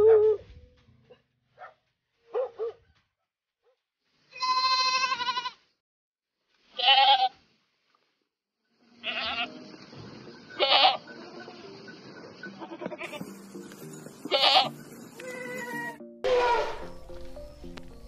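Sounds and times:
dog barking: 1.1s - 2.9s
goats bleating: 4.4s - 5.6s, 6.8s - 7.3s, 9.0s - 9.5s, 10.6s - 11.0s, 12.6s - 13.2s, 14.3s - 16.8s.

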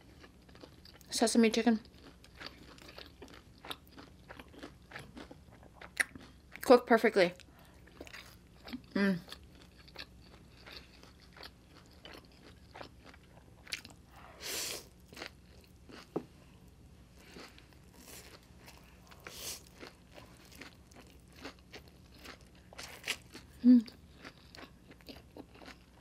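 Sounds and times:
wet chewing: 1.8s - 6.7s, 7.4s - 14.2s.

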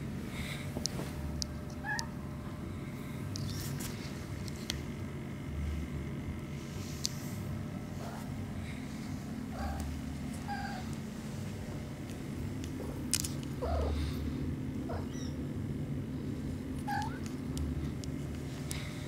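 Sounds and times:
steady low hum: 0.0s - 19.0s
kittens mewing: 9.4s - 11.0s, 13.5s - 14.2s, 14.8s - 15.4s, 16.8s - 17.3s.

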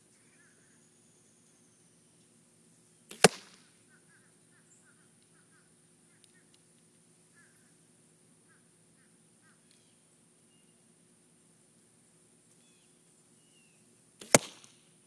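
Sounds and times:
arrow striking target: 3.1s - 3.7s, 14.2s - 14.8s.

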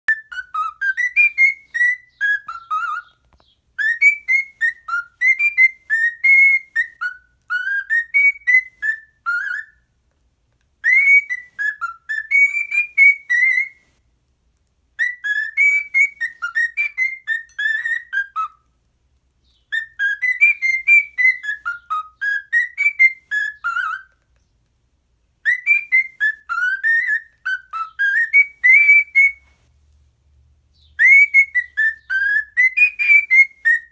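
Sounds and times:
cockatiel whistling: 0.1s - 9.9s, 10.8s - 14.0s, 15.0s - 18.7s, 19.4s - 24.4s, 25.4s - 29.6s, 30.8s - 33.9s.

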